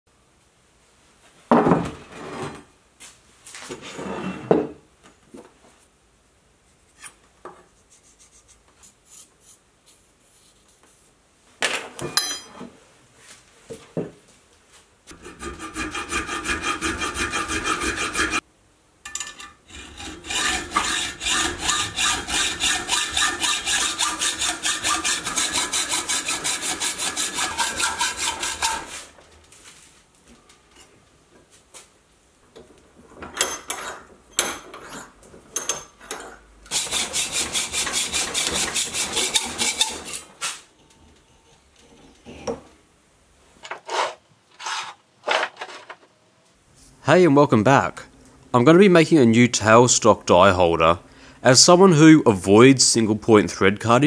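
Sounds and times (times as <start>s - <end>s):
hacksaw cutting steel bar: 15.2s - 18.4s, 19.7s - 29.0s, 36.7s - 40.3s.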